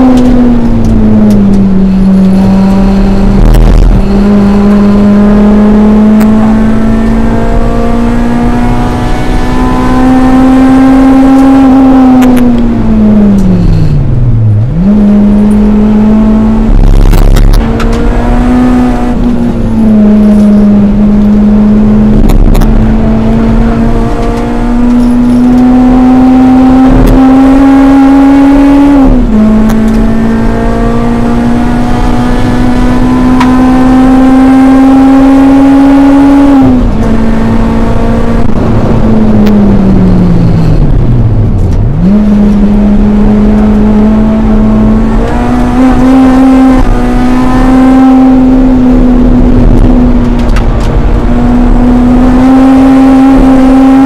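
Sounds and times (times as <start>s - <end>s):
car engine revving at high revs: 0.0s - 54.0s.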